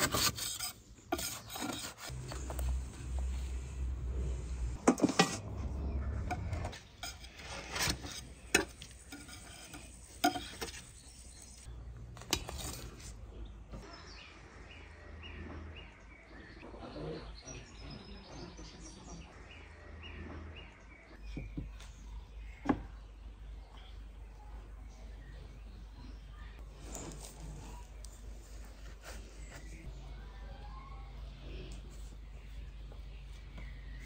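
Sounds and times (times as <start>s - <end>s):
knife scraping metal baking tray: 0.0s - 2.1s, 6.7s - 11.7s
small birds chirping: 13.3s - 34.0s.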